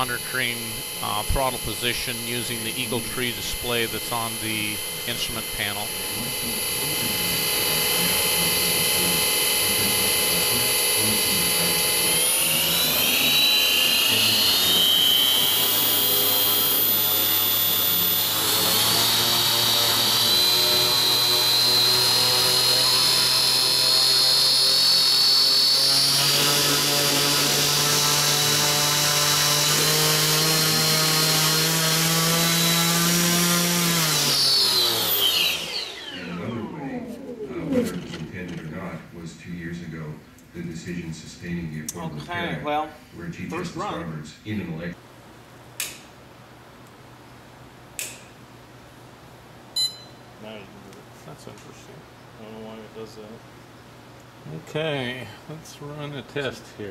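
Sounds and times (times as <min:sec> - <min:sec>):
electric motor whine: 0:00.0 - 0:38.6.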